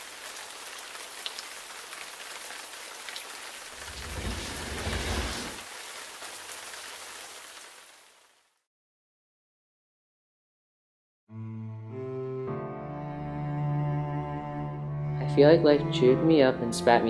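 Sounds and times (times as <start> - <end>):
heavy rain falling: 0.0 - 8.4
low roll of thunder: 3.7 - 5.6.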